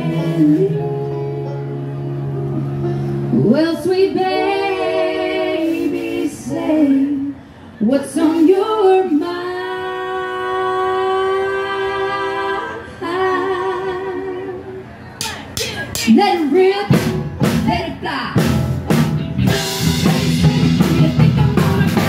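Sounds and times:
women singing in harmony: 0.0 - 1.6, 3.3 - 14.9.

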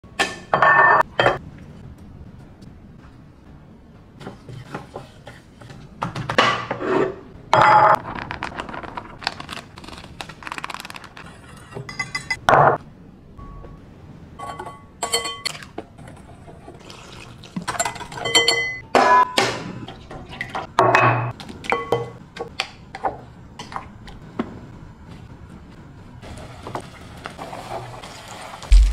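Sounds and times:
bowls and utensils clinking: 14.4 - 16.2, 16.8 - 19.5, 20.3 - 22.2.

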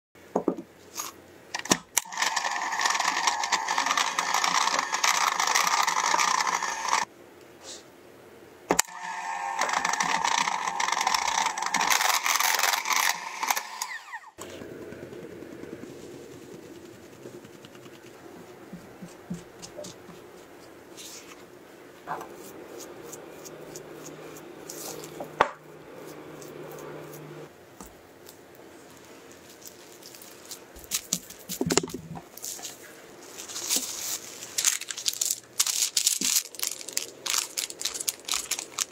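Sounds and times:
electric hand mixer running: 2.0 - 7.1, 8.8 - 15.9, 22.4 - 27.5.

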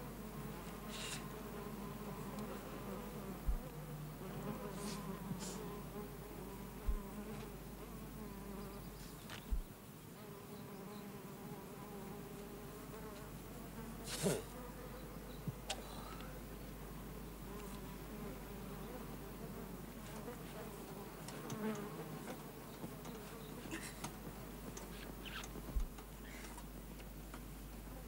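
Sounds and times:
flying insect buzzing: 0.0 - 26.6
dull low thumps: 3.4 - 3.7, 6.8 - 7.2, 9.4 - 9.7.

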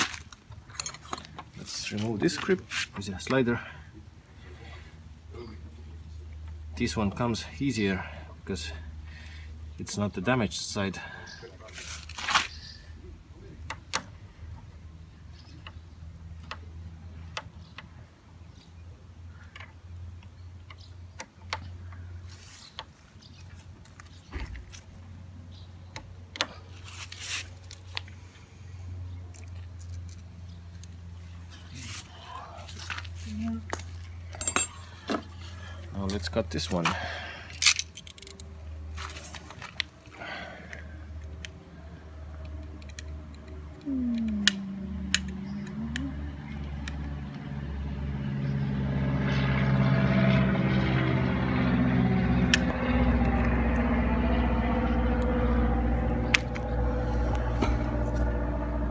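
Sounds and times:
vehicle engine hum: 0.0 - 58.9
steady low hum: 47.6 - 58.9.

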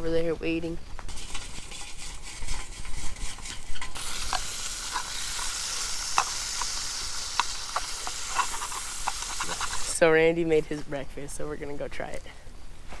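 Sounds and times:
bacon sizzling and popping: 1.0 - 10.0.

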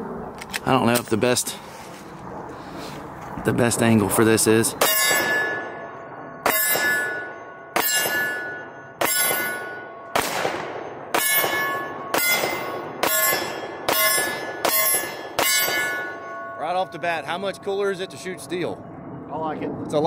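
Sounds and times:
steel target plate clanging: 4.8 - 10.1, 10.8 - 17.1
pistol shots: 7.8 - 16.1.

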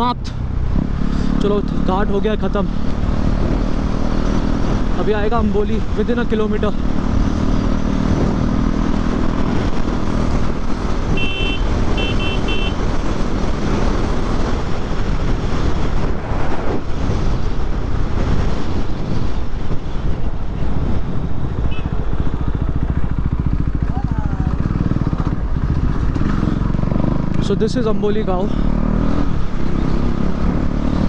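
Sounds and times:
motorcycle engine running: 0.0 - 15.9, 19.7 - 31.0
wind noise: 6.7 - 23.3.

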